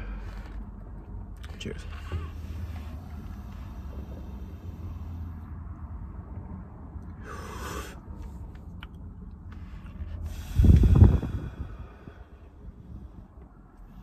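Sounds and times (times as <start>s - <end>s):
person exhaling vapor: 7.2s - 8.0s
breath blowing on microphone: 9.6s - 13.3s.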